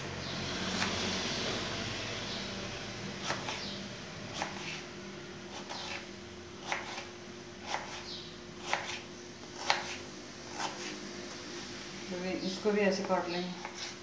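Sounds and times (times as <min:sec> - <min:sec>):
knife slicing mango: 0:03.2 - 0:04.9, 0:05.5 - 0:11.0, 0:13.0 - 0:14.0.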